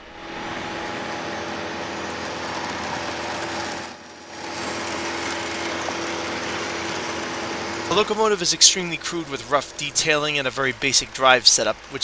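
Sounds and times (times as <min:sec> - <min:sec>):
model train motor buzzing: 0:00.4 - 0:07.9.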